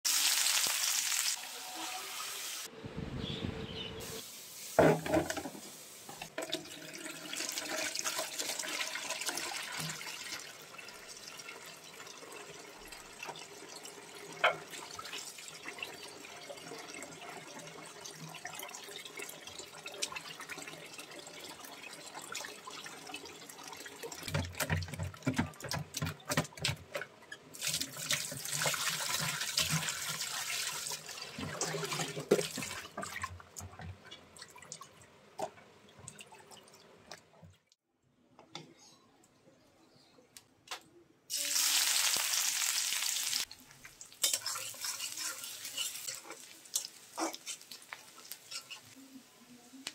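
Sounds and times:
tap water running into basin: 0:04.8 - 0:37.5.

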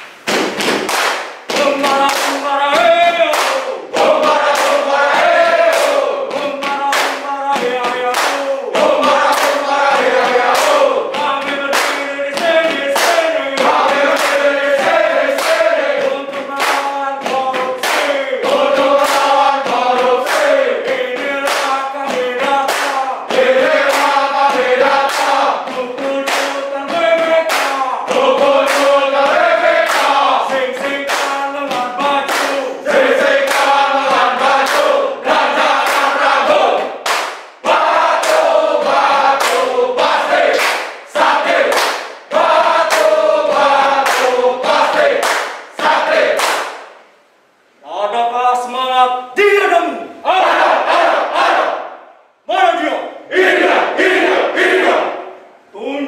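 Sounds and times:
sharp hand claps: 0:00.0 - 0:47.0
men singing and chanting: 0:01.5 - 0:37.0, 0:37.6 - 0:46.4.

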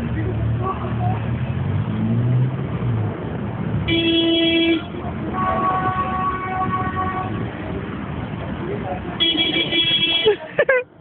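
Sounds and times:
street traffic: 0:00.0 - 0:11.0
car horns honking: 0:03.8 - 0:07.7, 0:09.2 - 0:10.5.

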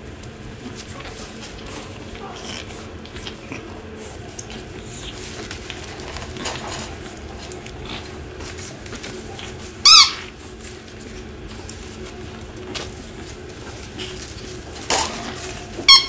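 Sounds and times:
puppies scuffling: 0:00.0 - 0:16.0
squeaky toy squeak: 0:09.8 - 0:10.2.

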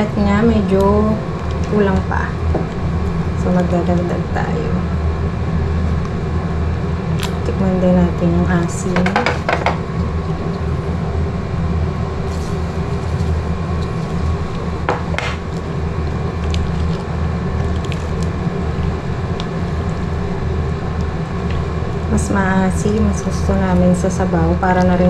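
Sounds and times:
pot simmering rumble: 0:08.2 - 0:25.0.

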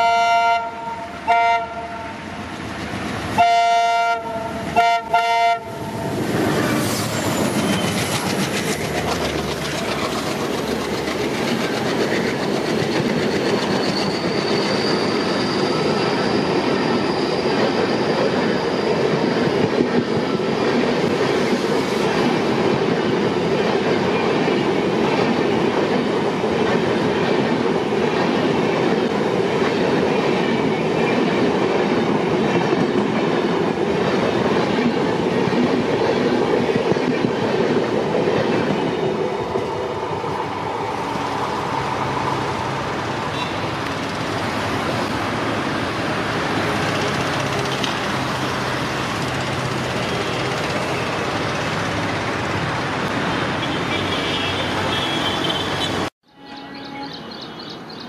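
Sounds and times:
locomotive horn blasts: 0:00.0 - 0:02.2, 0:03.4 - 0:06.2, 0:53.6 - 0:57.2
high wheel squeal: 0:05.8 - 0:20.8, 0:53.3 - 0:57.8
train wheels clattering over rail joints: 0:06.3 - 0:15.1, 0:46.0 - 0:52.6.

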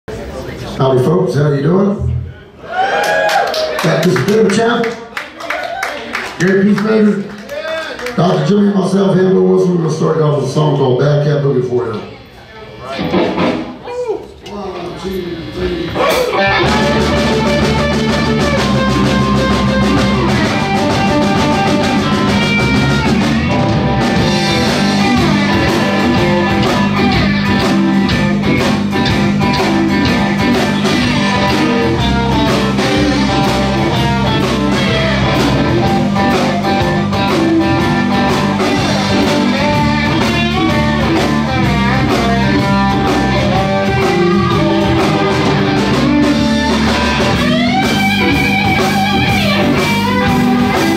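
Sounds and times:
drum kit: 0:12.9 - 0:13.9, 0:15.4 - 0:50.9
electric guitars: 0:15.1 - 0:50.9
electric bass: 0:15.4 - 0:50.9.

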